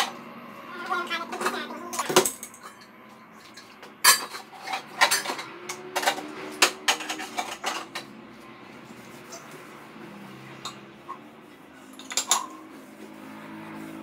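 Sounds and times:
pots and utensils clattering: 0:01.0 - 0:08.2, 0:09.3 - 0:09.6, 0:10.5 - 0:11.2, 0:11.8 - 0:12.7.

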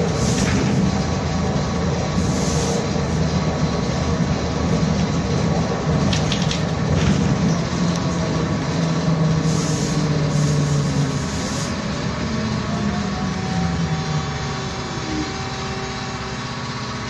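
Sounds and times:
trolleybus interior hum: 0:00.0 - 0:17.0
rising motor whine: 0:07.4 - 0:17.0.

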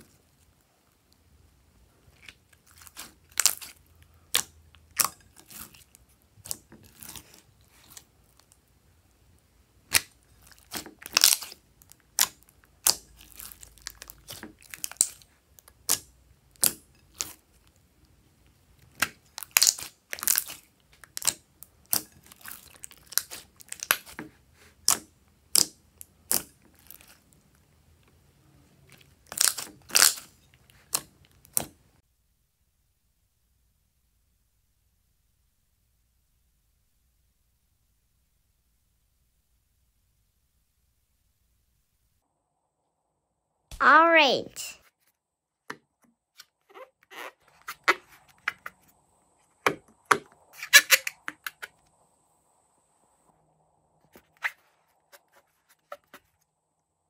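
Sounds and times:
hands squishing slime: 0:02.1 - 0:08.6, 0:09.8 - 0:17.8, 0:18.8 - 0:27.3, 0:28.9 - 0:31.8.

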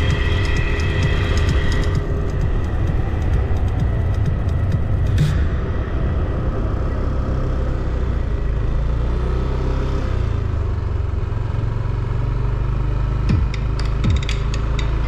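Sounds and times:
wind rumble on microphone: 0:00.0 - 0:08.8
scooter engine cruising: 0:00.0 - 0:15.0.

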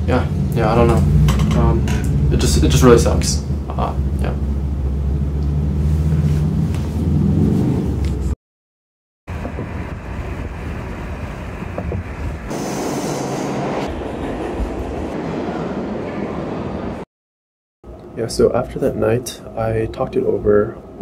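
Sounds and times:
subway car rumbling and rattling: 0:00.0 - 0:08.4, 0:09.3 - 0:17.1
hiss: 0:12.5 - 0:13.8.

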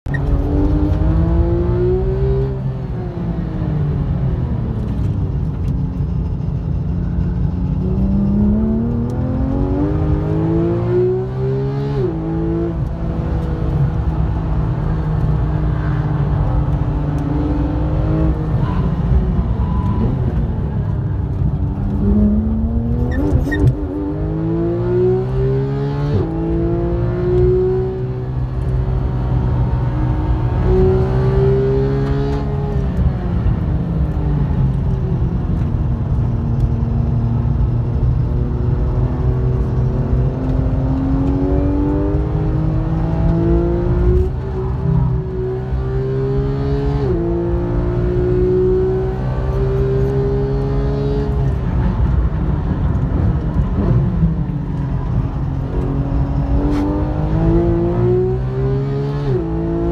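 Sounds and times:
sports car engine revving: 0:07.5 - 0:18.6, 0:21.6 - 0:33.0, 0:36.8 - 0:51.6, 0:55.1 - 0:59.9.

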